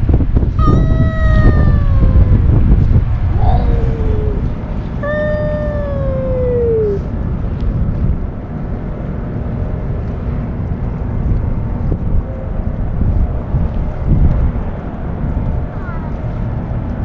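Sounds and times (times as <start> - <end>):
wind buffeting microphone: 0.0 - 17.0
cat meowing: 0.6 - 2.5, 3.3 - 7.0.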